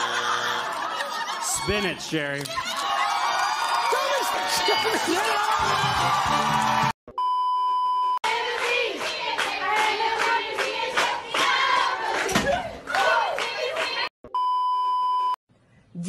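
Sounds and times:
group clapping in rhythm: 0:02.4 - 0:06.9, 0:08.2 - 0:14.1
test-pattern beep: 0:07.1 - 0:08.2, 0:14.3 - 0:15.4.

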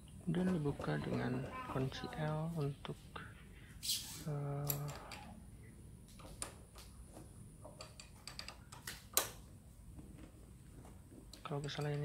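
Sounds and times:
allen key clicking on bolts: 0:07.7 - 0:09.4.

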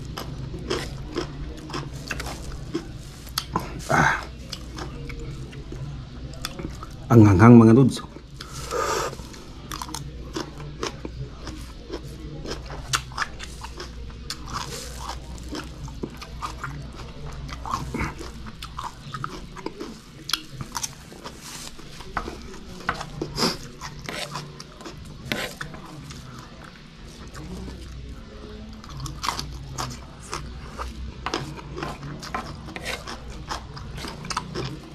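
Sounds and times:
crunching and chewing vegetables: 0:00.0 - 0:07.1, 0:07.8 - 0:34.9.

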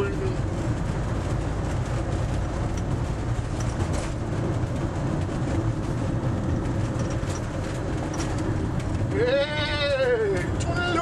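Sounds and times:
engine and tyre rumble: 0:00.0 - 0:11.0
faint light rattles: 0:00.6 - 0:09.1.

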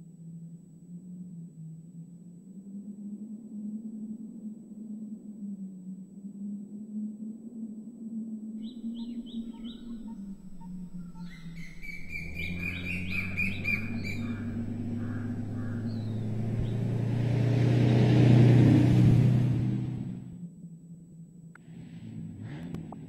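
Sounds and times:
low steady hum: 0:00.0 - 0:17.5, 0:18.8 - 0:23.0
birds chirping: 0:08.6 - 0:17.4
low rumble: 0:08.8 - 0:20.6.

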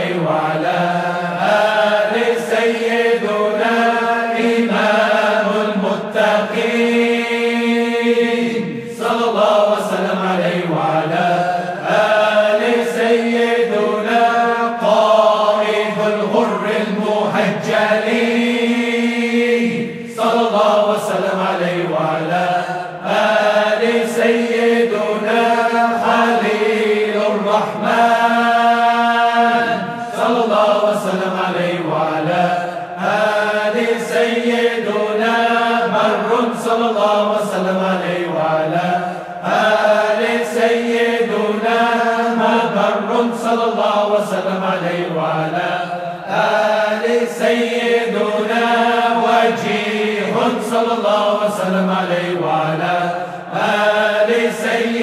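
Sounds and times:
voices chanting: 0:00.0 - 0:55.0.

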